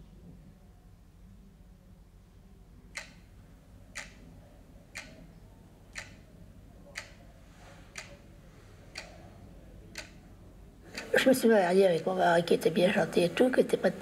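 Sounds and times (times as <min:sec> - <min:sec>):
faint low room hum: 0:00.0 - 0:14.0
clock ticking: 0:02.9 - 0:03.3, 0:03.9 - 0:04.3, 0:04.9 - 0:05.3, 0:05.9 - 0:06.3, 0:06.9 - 0:07.2, 0:07.9 - 0:08.2, 0:08.9 - 0:09.2, 0:09.9 - 0:10.2.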